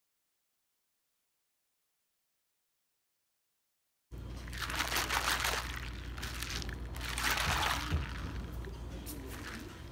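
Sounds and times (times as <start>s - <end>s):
steady low hum: 4.1s - 9.9s
ice sloshing in shaken cup: 4.4s - 9.9s.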